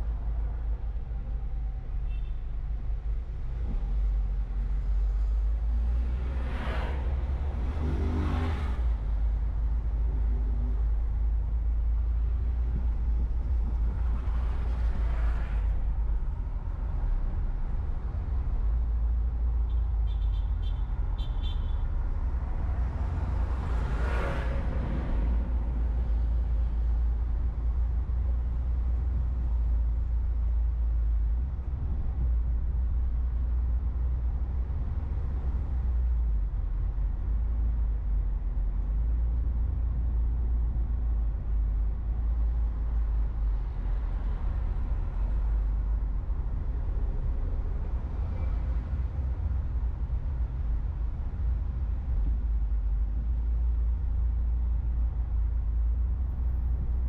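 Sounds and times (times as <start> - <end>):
car engine and tyres rumbling: 0.0 - 57.0
passing vehicle whoosh: 5.8 - 9.1, 22.3 - 27.0.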